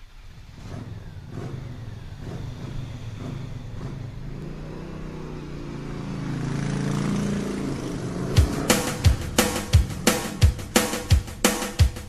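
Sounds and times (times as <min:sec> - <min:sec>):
truck engine revving: 0:00.0 - 0:11.8
music: 0:08.2 - 0:12.0.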